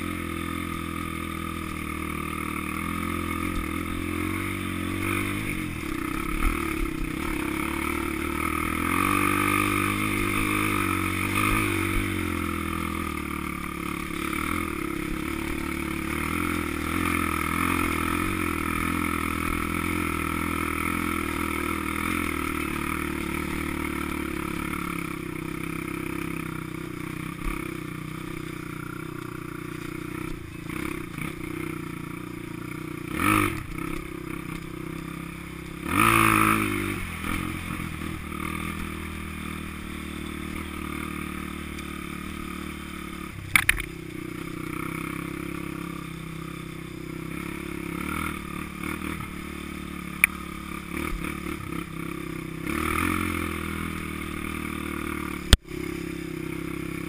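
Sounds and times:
dirt bike engine running: 0:00.0 - 0:57.0
sharp knocks from bike: 0:43.5 - 0:44.0.

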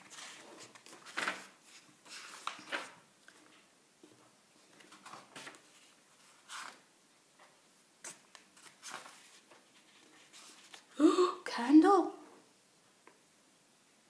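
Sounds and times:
book pages turning: 0:00.0 - 0:03.6, 0:04.7 - 0:06.9, 0:08.0 - 0:10.9.

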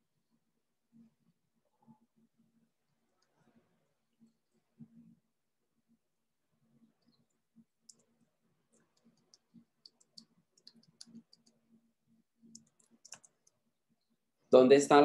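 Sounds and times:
faint computer mouse clicks: 0:12.5 - 0:13.6.

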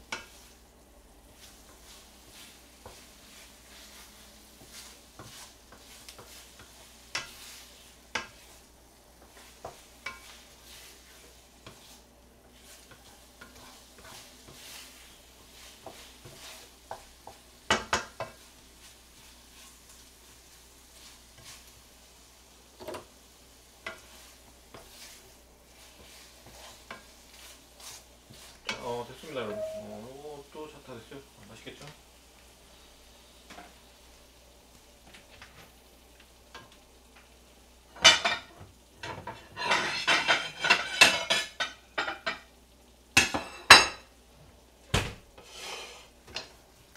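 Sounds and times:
wooden spatula scraping a pan: 0:00.0 - 0:00.6, 0:01.3 - 0:22.2, 0:22.8 - 0:30.4, 0:38.0 - 0:42.4, 0:45.3 - 0:46.6
faint sizzle: 0:00.0 - 0:46.9.

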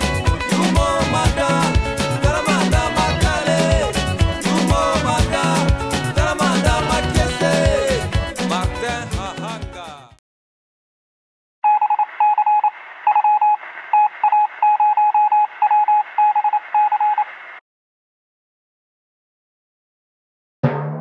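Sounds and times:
electronic beep pulses: 0:11.6 - 0:17.3.

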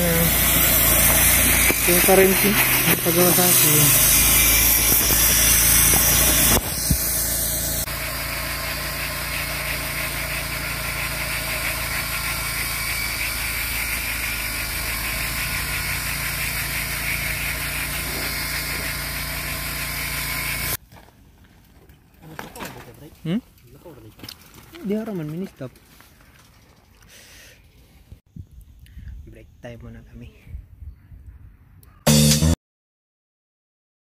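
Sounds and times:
engine idling hum: 0:00.0 - 0:20.8.

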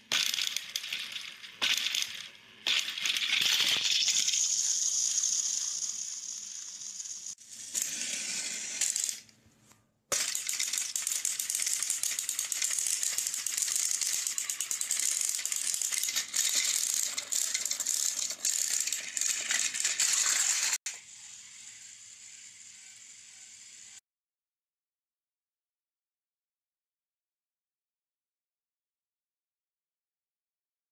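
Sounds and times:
toy train motors whirring: 0:00.0 - 0:09.3, 0:10.1 - 0:24.0.

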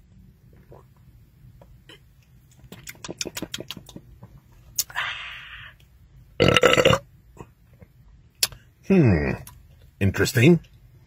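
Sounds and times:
man gulping soda: 0:01.8 - 0:05.0
breathy exhale: 0:04.9 - 0:05.8
loud belch: 0:06.4 - 0:07.1.

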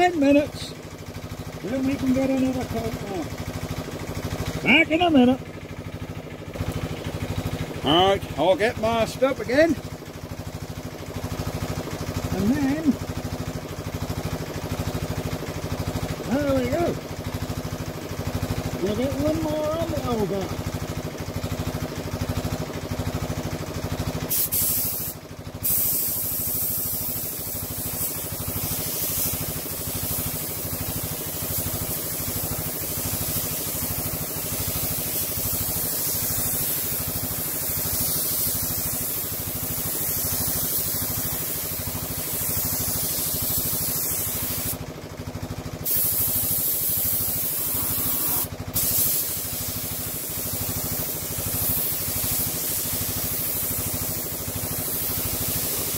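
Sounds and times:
air compressor running: 0:00.0 - 0:55.9
paint spray gun hissing: 0:17.4 - 0:55.9.

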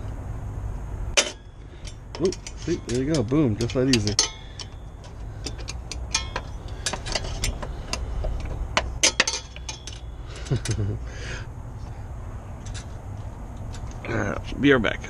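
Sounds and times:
screwdriver clinking on metal: 0:01.2 - 0:10.9.

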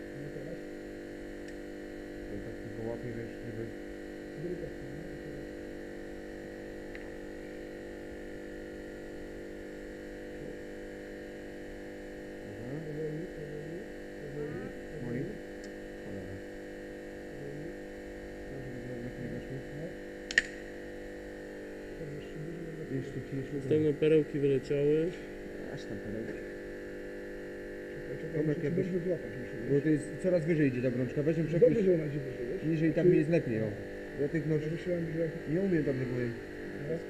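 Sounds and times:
steady hum: 0:00.0 - 0:37.0
faint murmuring: 0:27.8 - 0:37.0.

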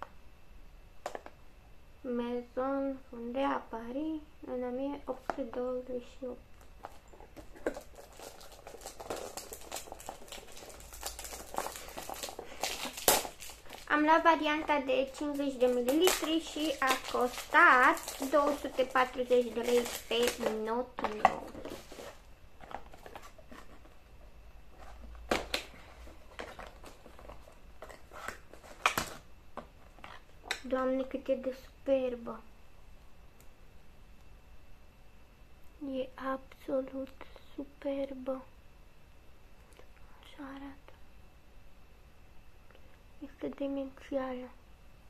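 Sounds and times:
cardboard box rustling: 0:15.1 - 0:24.0.

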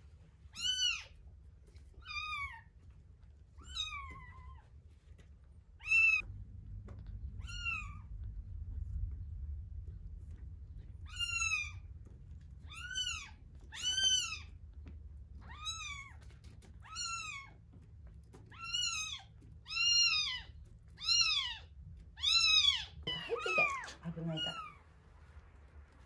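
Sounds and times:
kitten mewing: 0:22.2 - 0:24.8.

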